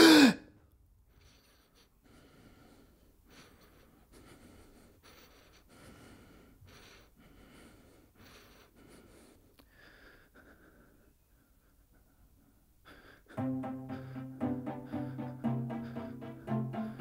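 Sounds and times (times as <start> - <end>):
man breathing quickly: 1.1 - 17.0.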